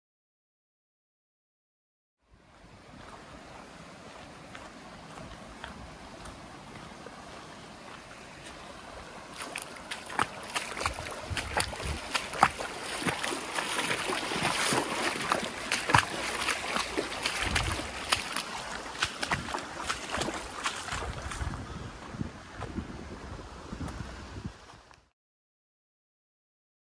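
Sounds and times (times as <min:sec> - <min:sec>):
boots splashing through shallow water: 0:02.5 - 0:22.7.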